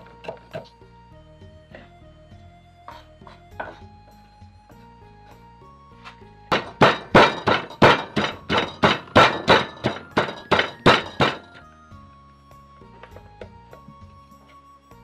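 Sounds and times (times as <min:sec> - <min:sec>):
background music: 0:00.0 - 0:15.0
pestle pounding in wooden mortar: 0:06.5 - 0:11.6.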